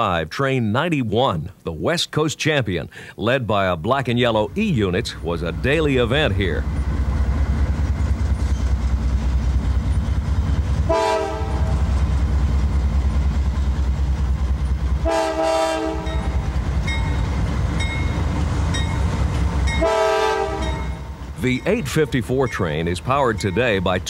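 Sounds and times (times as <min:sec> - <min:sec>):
diesel locomotives rumbling: 0:03.0 - 0:24.0
train air horn: 0:10.9 - 0:11.9, 0:15.0 - 0:16.3, 0:19.8 - 0:20.8.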